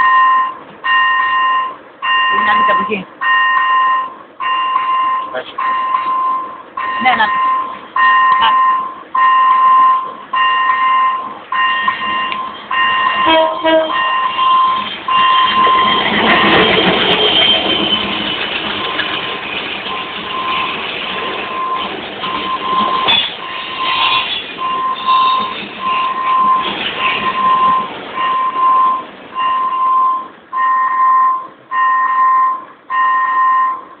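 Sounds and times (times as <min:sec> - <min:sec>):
freight train wheels rumbling: 0:00.0 - 0:31.8
level crossing bell ringing: 0:01.2 - 0:16.0.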